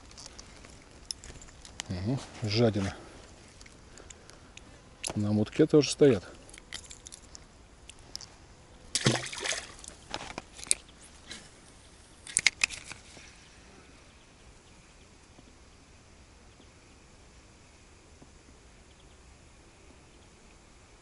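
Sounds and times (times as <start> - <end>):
faint steady background noise: 0.0 - 21.0
water splashing: 8.9 - 10.0.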